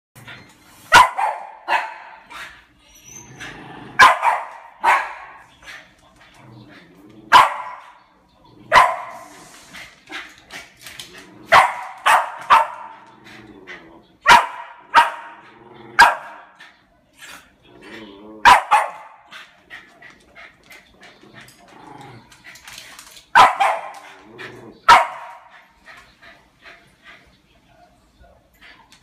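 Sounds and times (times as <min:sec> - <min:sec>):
dog barking excitedly: 0:00.9 - 0:02.4, 0:04.0 - 0:05.4, 0:07.3 - 0:08.0, 0:08.7 - 0:09.2, 0:11.5 - 0:13.0, 0:14.2 - 0:15.4, 0:16.0 - 0:16.6, 0:18.4 - 0:19.3, 0:23.3 - 0:24.2, 0:24.9 - 0:25.5.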